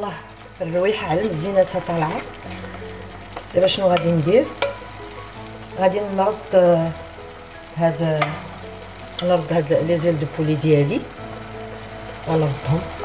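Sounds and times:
sauce sizzling in pot: 0.0s - 13.0s
wooden utensil stirring: 0.8s - 5.3s.

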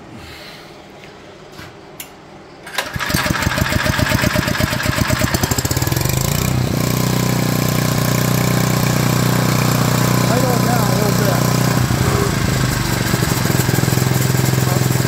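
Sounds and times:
small engine starting and running: 2.6s - 15.0s.

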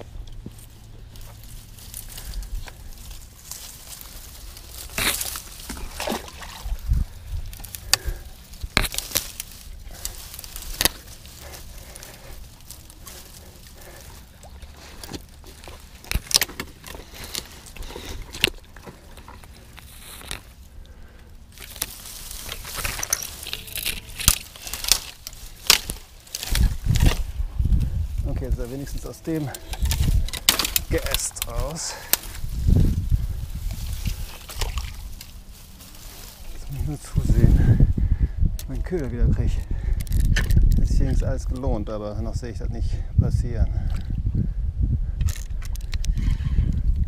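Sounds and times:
branches cracking and rustling: 0.0s - 42.7s, 45.0s - 47.0s
low wind rumble: 0.0s - 47.0s
water sloshing: 1.1s - 7.7s, 33.8s - 36.6s.

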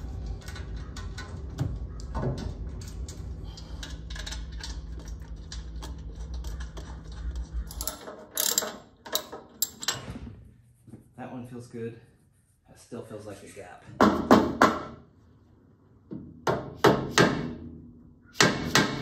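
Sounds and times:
steady low hum: 0.0s - 8.1s
metal bolts clicking and rattling: 0.1s - 10.1s.

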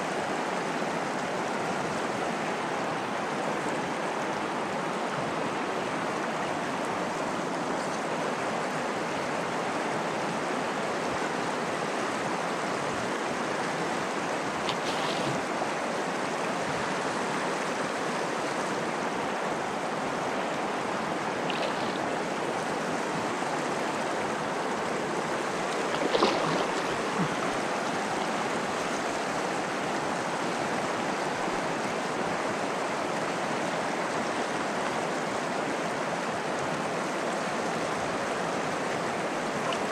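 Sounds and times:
river flowing: 0.0s - 39.9s
short splashes: 14.6s - 15.5s, 21.4s - 22.1s, 25.6s - 27.8s.

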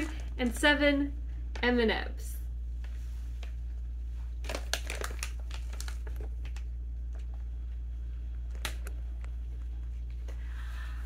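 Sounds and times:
plastic bag crinkling: 0.0s - 0.6s, 4.2s - 7.4s.

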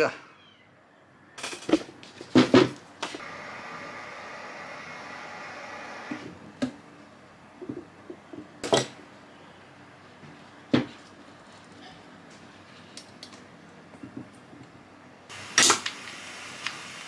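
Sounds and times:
steady hiss: 15.3s - 17.0s
wire cutters snapping: 15.6s - 16.0s.

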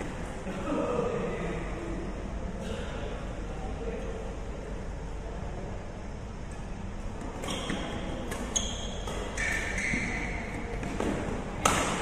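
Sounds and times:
rackets hitting shuttlecock: 7.3s - 12.0s
shoe squeaking on court floor: 7.4s - 11.2s.

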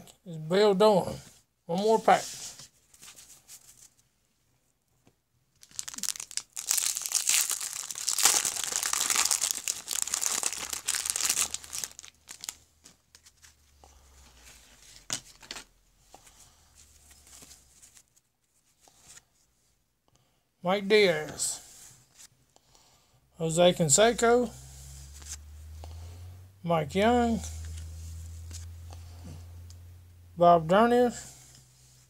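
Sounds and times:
wrapper tearing and crinkling: 5.6s - 12.6s
cards rustling and ticking: 5.6s - 13.6s.

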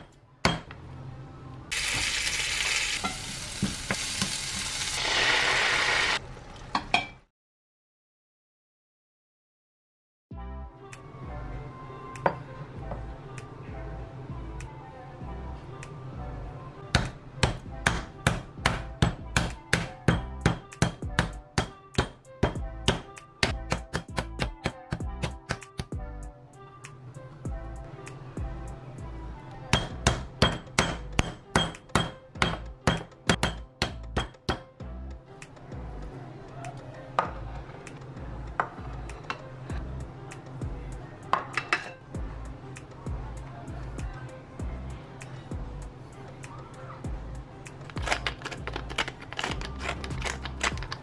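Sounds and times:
food sizzling in a frying pan: 1.7s - 6.2s
sauce poured into hot pan: 1.7s - 6.2s
meat mallet pounding chicken: 17.0s - 25.9s.

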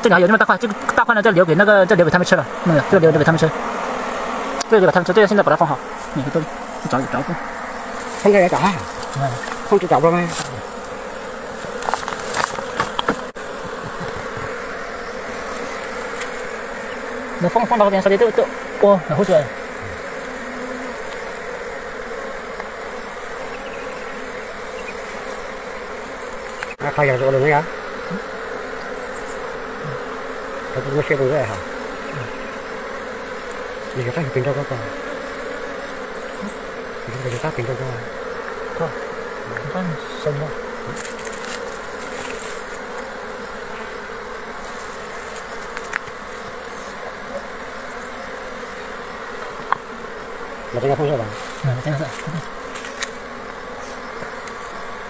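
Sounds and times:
voices: 0.0s - 42.8s, 50.6s - 54.7s
bees buzzing: 0.0s - 55.0s
man's voice murmuring: 30.8s - 32.4s, 50.7s - 52.5s.

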